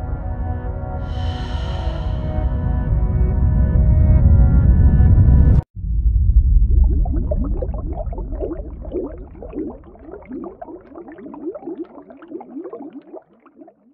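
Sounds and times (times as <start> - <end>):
underwater rush: 6.1 - 13.9
bubbles gurgling: 6.6 - 13.9.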